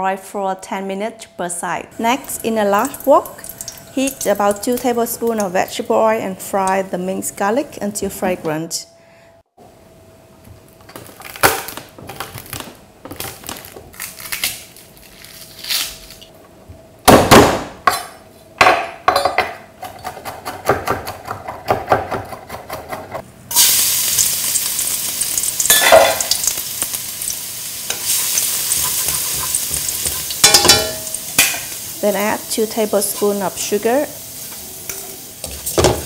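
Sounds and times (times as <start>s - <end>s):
garlic sizzling in hot oil: 2.0s - 6.1s, 23.5s - 36.0s.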